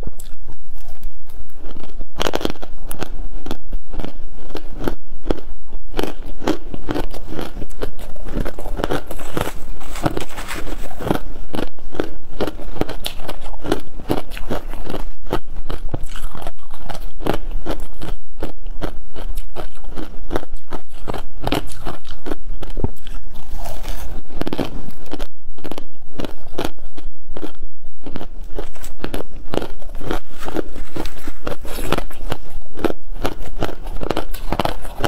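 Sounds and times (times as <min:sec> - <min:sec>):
crunching and chewing frost: 0:00.0 - 0:35.0.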